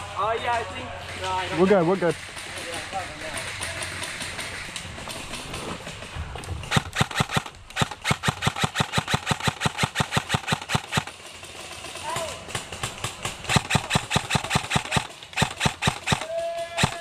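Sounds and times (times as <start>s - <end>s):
airsoft rifle firing: 6.6s - 11.2s, 12.2s - 17.0s.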